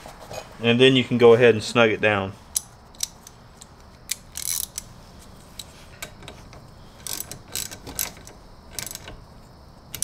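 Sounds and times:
hand ratchet clicking: 4.1s - 4.9s, 7.0s - 9.2s.

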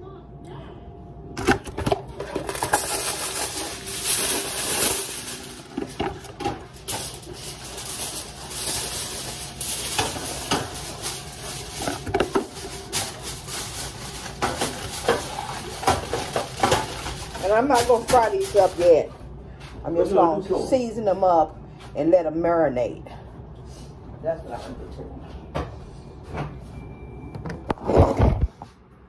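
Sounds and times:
kitchen items clattering on counter: 1.4s - 19.1s
plastic packaging rustling: 1.4s - 19.1s.

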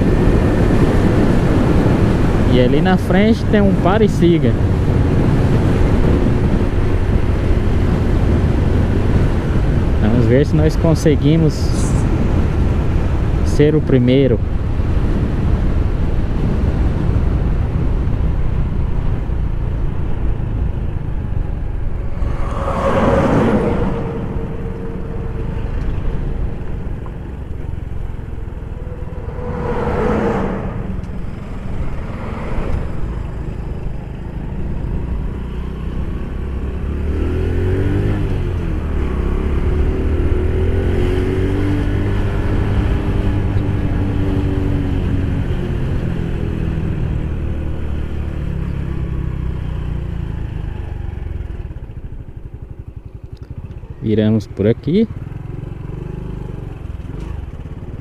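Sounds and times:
trucks passing with whoosh: 0.0s - 58.0s
wind and road rush: 0.0s - 58.0s
motorcycle engine running: 23.7s - 30.0s, 30.7s - 58.0s.

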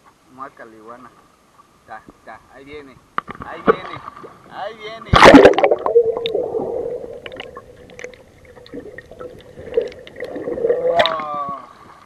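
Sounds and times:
steady underwater hum: 1.1s - 12.0s
churning water and bubbles: 5.1s - 12.0s
faint underwater clicks: 5.1s - 12.0s.

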